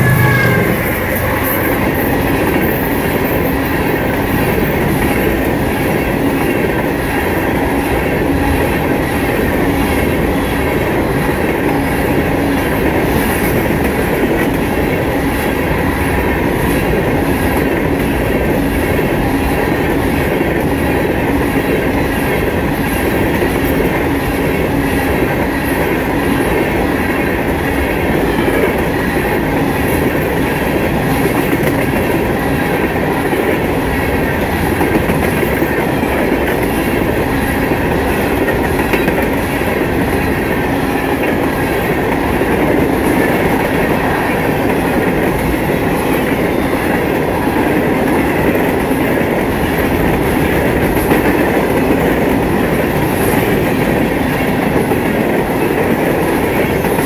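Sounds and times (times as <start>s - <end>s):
steel wheels on rails: 0.0s - 57.0s.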